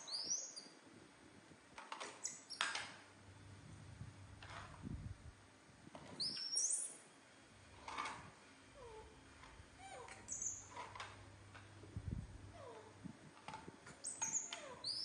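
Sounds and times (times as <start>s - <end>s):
monkeys squeaking and calling: 9.8s - 10.7s, 14.0s - 15.0s.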